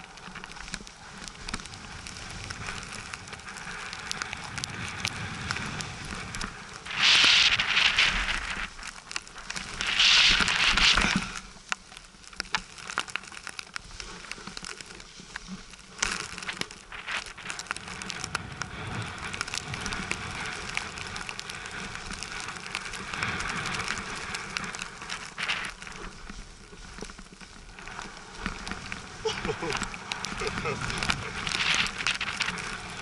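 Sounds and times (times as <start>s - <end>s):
snowboard scraping on snow: 0.4s - 11.6s, 15.1s - 33.0s.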